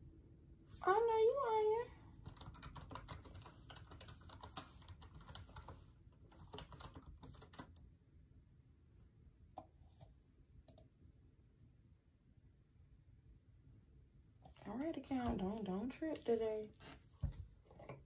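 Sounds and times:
faint keyboard typing: 2.2 - 7.9, 9.6 - 10.9.

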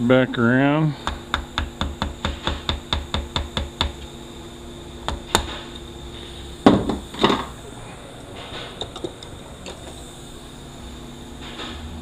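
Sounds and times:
tool thumping on bench: 6.6 - 7.5.

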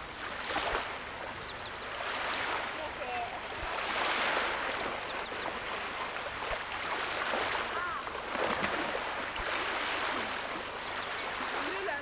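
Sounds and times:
water splashing around waders: 0.0 - 12.0.

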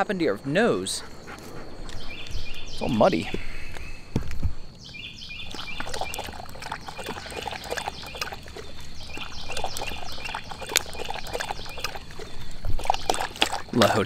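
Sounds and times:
dog lapping water from bowl: 5.4 - 14.0.

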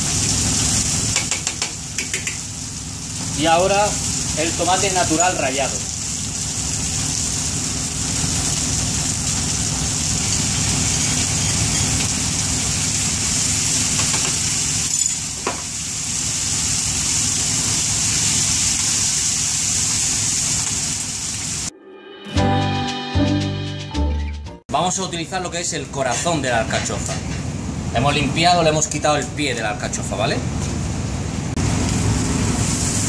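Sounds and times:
food sizzling in a pan: 0.0 - 21.7, 31.6 - 33.0.

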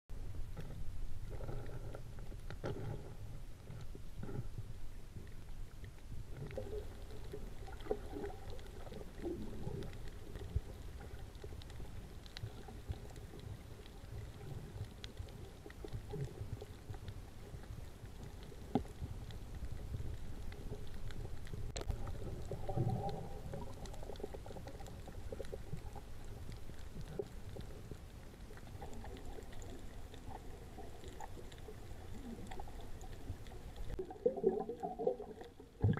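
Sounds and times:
underwater rumble of moving water: 0.1 - 35.9
gurgling and bubbling: 6.3 - 11.3, 21.6 - 26.2, 28.6 - 35.9.

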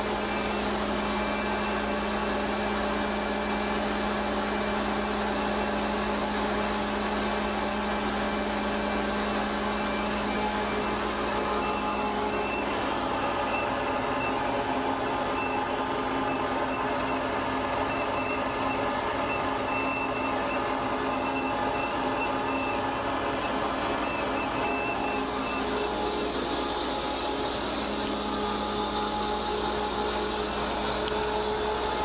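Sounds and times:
augers running: 9.6 - 32.0.

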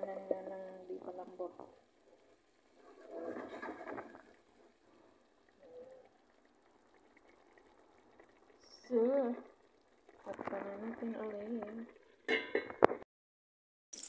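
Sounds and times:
quiet simmering: 0.0 - 13.0
liquid sloshing in a pot: 2.7 - 12.8
wavering voice-like sound: 5.6 - 6.1.

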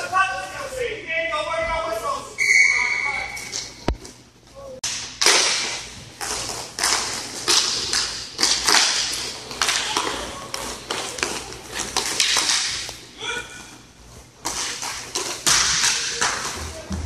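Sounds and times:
hockey sticks and puck clacking: 4.8 - 13.1, 14.4 - 17.0.

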